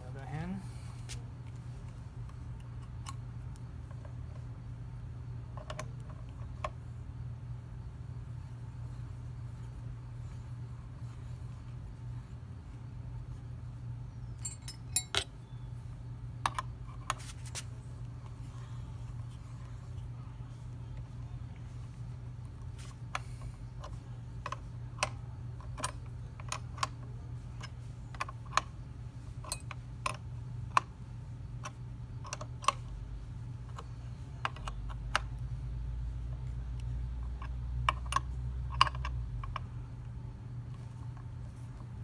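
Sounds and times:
steady low hum: 0.0 - 42.0
wrench clicking on metal nut: 14.4 - 15.3.

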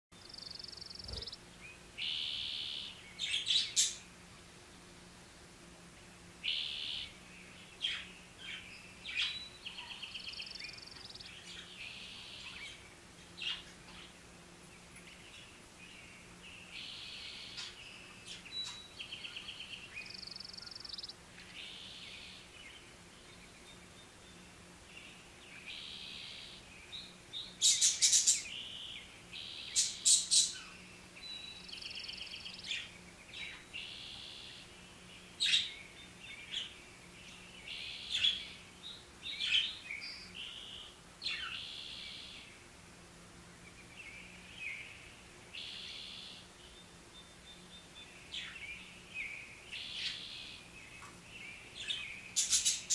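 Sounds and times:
faint low hum: 0.2 - 52.9
budgerigars chattering: 0.3 - 1.4.

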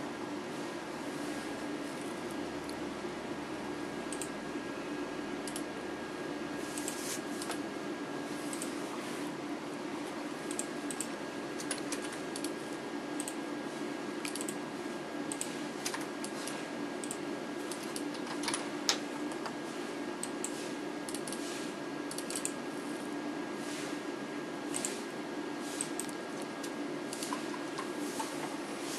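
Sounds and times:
steady low hum: 0.0 - 28.9
mouse and keyboard clicking: 10.5 - 12.6, 14.2 - 14.6, 22.1 - 22.6, 25.8 - 28.4.

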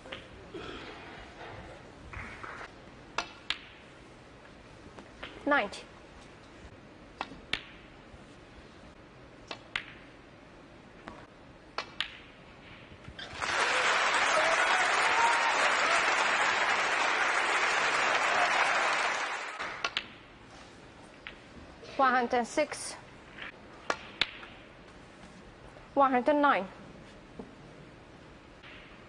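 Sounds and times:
audience applauding: 13.2 - 19.8.

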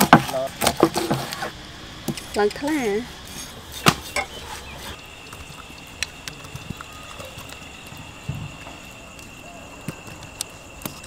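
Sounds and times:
dull thump: 3.8 - 4.3, 8.2 - 8.8.

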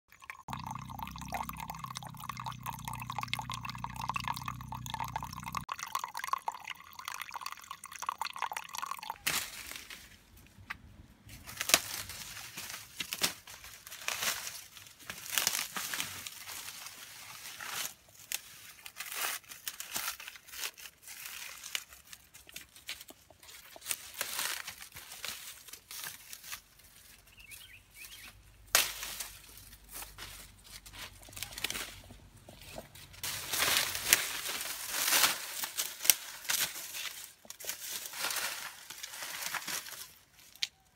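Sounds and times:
water trickling and dripping: 0.1 - 9.2
dry leaves crackling and rustling: 11.3 - 27.4, 33.2 - 40.6.

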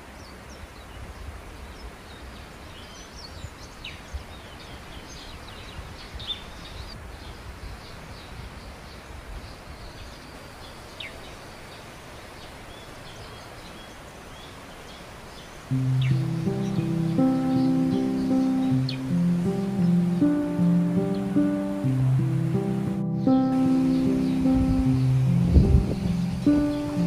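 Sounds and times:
small birds chirping: 0.0 - 27.0
steady hiss: 6.9 - 27.0.

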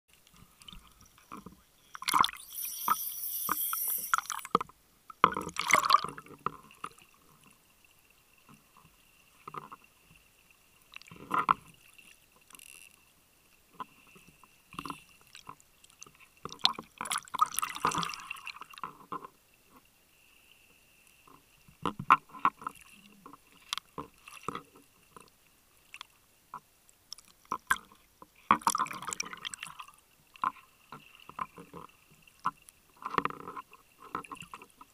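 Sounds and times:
faint high whine: 0.3 - 4.6
water bubbling underwater: 0.5 - 4.6, 5.3 - 6.3.

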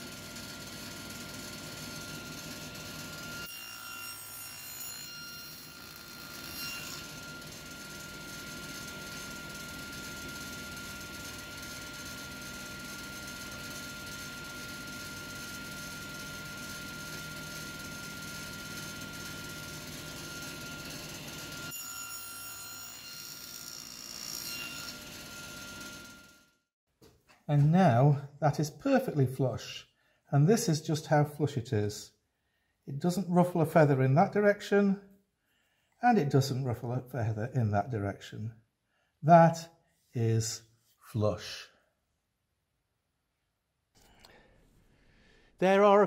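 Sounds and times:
table saw cutting wood: 0.0 - 26.6.

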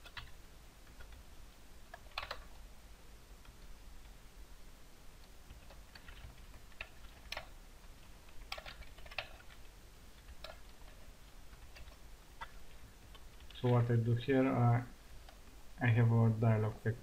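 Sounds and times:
typing on computer keyboard: 0.0 - 1.2, 1.9 - 2.5, 5.5 - 9.6, 10.2 - 12.5.

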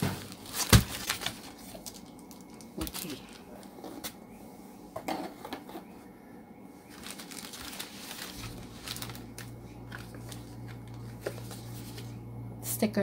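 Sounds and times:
plastic packaging and paper rustling: 0.0 - 4.2, 6.8 - 12.2
steady low hum: 0.0 - 13.0.

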